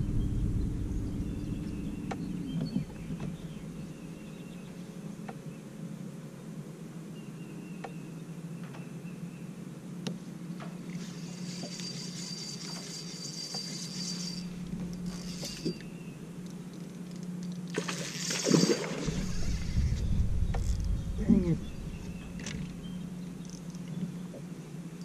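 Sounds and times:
rush of noise: 0.0 - 4.2, 19.0 - 23.2
electric trolling motor humming: 10.8 - 24.2
fishing reel clicks and rustles: 10.9 - 20.9, 22.4 - 24.1.

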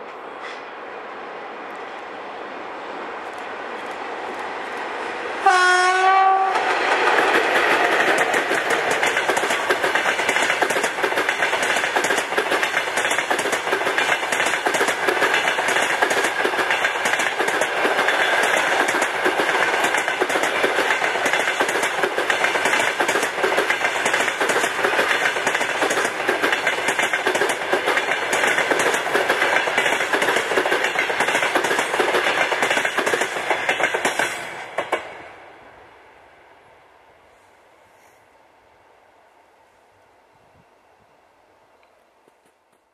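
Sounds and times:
train horn blast: 5.4 - 6.6
train wheels clicking over rail joints: 6.5 - 35.2.

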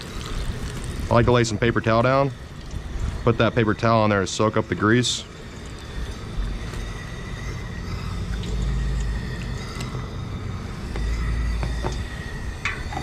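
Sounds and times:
wind buffeting microphone: 0.1 - 4.1.

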